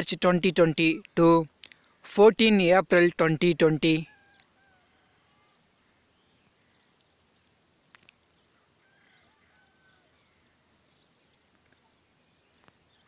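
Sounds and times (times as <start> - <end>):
faint clicks: 1.0 - 2.0, 6.9 - 8.4.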